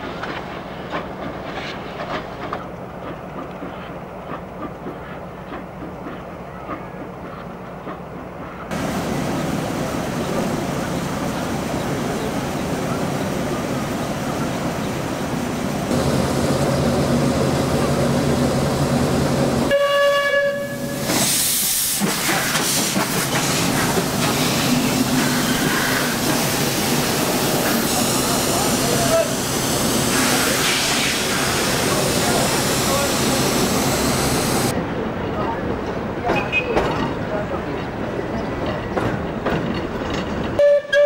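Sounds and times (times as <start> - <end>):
steam locomotive working: 0.0 - 41.0
hissing steam rush: 8.7 - 19.7, 20.8 - 34.8
steam whistle blast: 19.7 - 21.0, 40.6 - 41.0.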